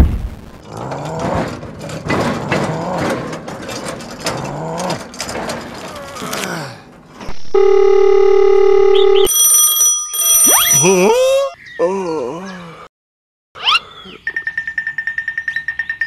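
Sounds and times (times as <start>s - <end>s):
deep voice groaning: 0.6s - 1.6s, 4.3s - 5.1s, 5.9s - 6.9s, 11.8s - 12.9s
phone ringtone: 7.3s - 11.6s.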